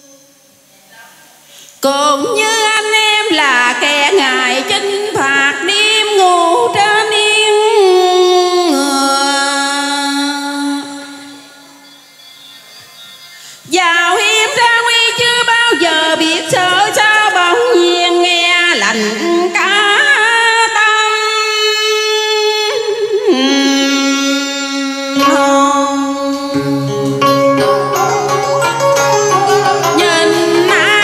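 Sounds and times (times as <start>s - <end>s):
woman singing opera through pa: 1.8s - 12.0s, 13.6s - 28.2s, 29.2s - 31.0s
music: 2.0s - 31.0s.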